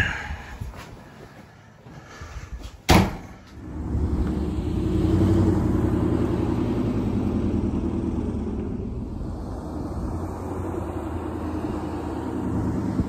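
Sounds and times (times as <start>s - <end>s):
vehicle engine running: 3.6s - 13.0s.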